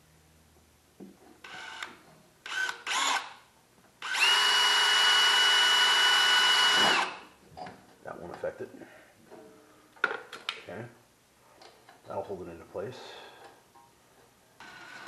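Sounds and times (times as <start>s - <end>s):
cordless drill driving screw: 1.4s - 3.4s, 4.0s - 7.2s.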